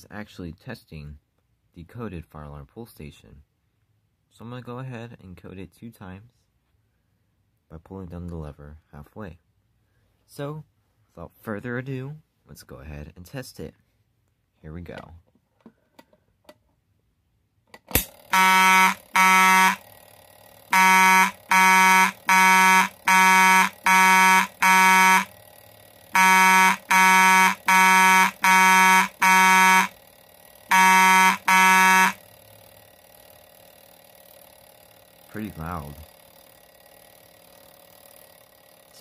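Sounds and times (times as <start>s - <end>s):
pull station lever click: 17.7s - 18.2s
fire alarm horn buzzing blasts: 18.0s - 32.4s.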